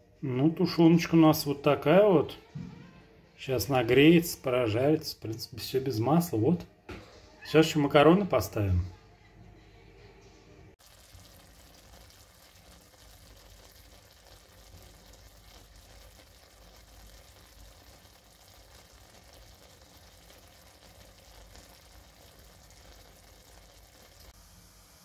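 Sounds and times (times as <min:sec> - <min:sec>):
meat and onion faintly sizzling: 0:10.8 - 0:25.0.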